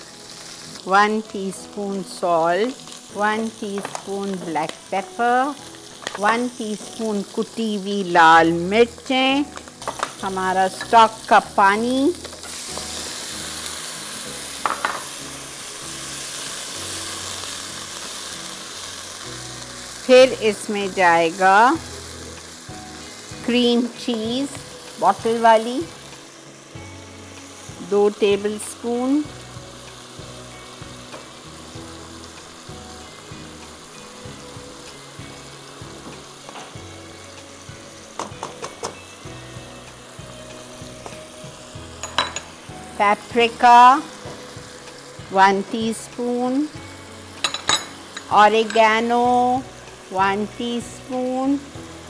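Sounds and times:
chicken sizzling in a frying pan: 0.0s - 52.0s.

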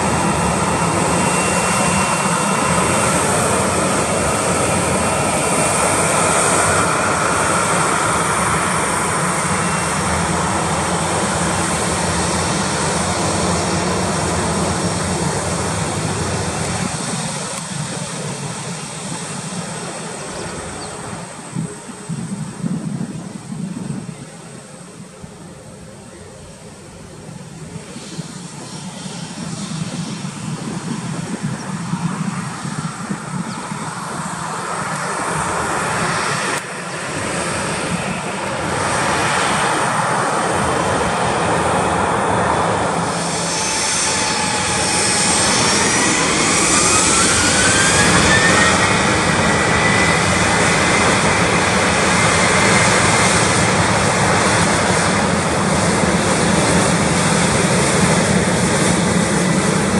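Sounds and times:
jet engines spooling up: 0.0s - 59.9s.

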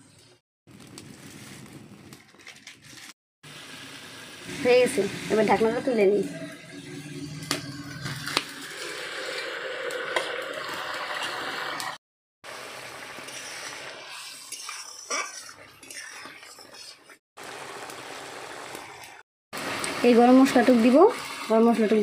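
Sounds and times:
curry simmering and bubbling: 6.4s - 22.0s
metal ladle scraping a pan: 13.2s - 17.2s.

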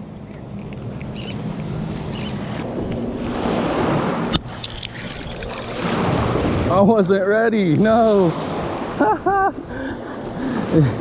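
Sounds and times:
small surf washing on shore: 3.2s - 9.0s.

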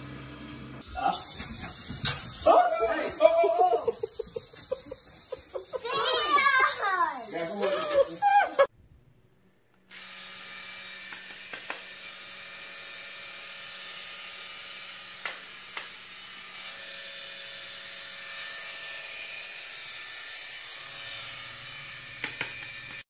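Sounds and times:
hair dryer running: 9.9s - 16.8s, 20.6s - 23.0s.

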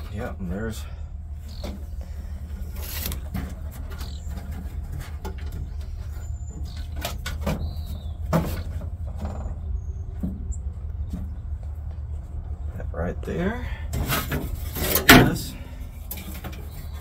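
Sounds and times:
bird chirping: 0.0s - 3.0s, 3.6s - 12.9s, 16.4s - 17.0s.

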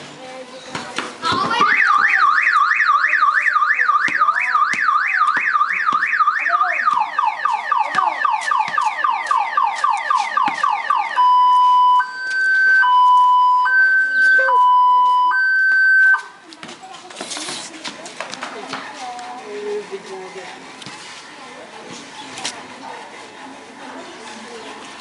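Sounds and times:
car alarm siren: 1.7s - 16.2s.

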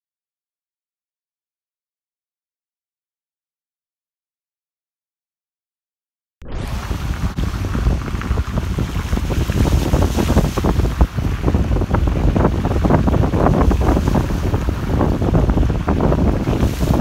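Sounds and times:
wind buffeting microphone: 6.5s - 17.0s
floodwater sloshing: 6.6s - 17.0s.

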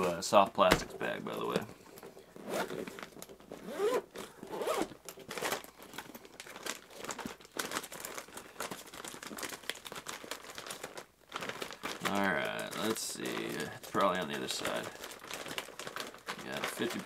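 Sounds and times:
plastic packs crinkling: 0.0s - 17.0s
zipper opening: 2.4s - 5.6s.

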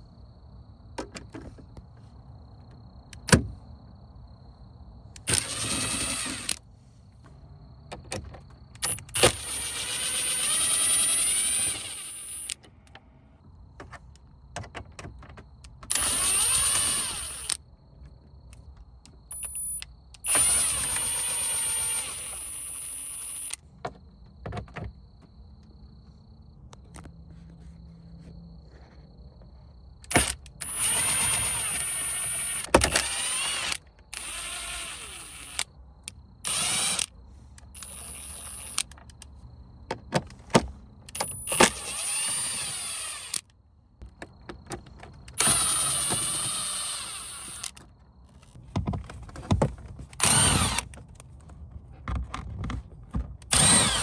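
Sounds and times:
electric screwdriver whining: 5.2s - 6.6s, 8.8s - 12.6s, 15.9s - 17.6s, 20.3s - 23.6s, 30.1s - 35.7s, 36.5s - 37.1s, 37.8s - 39.0s, 41.2s - 43.5s, 45.4s - 47.8s, 50.2s - 50.9s, 53.5s - 54.0s.

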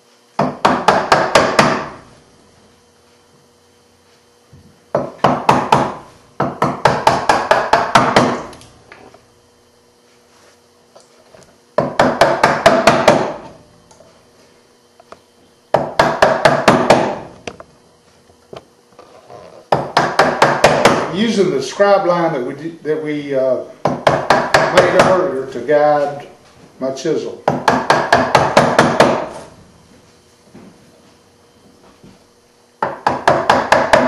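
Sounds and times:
chisel tapping into wood: 23.8s - 25.2s, 32.8s - 34.0s.

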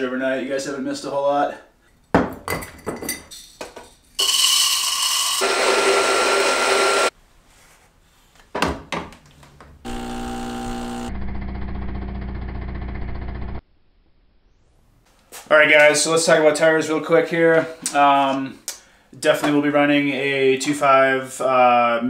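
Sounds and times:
coffee grinder grinding: 4.2s - 7.1s, 9.9s - 13.5s
espresso machine pump humming: 5.4s - 7.1s, 9.9s - 13.6s.

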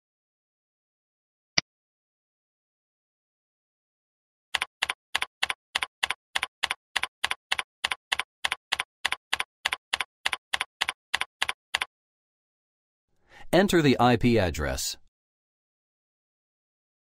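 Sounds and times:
keyboard key presses: 4.6s - 11.9s.

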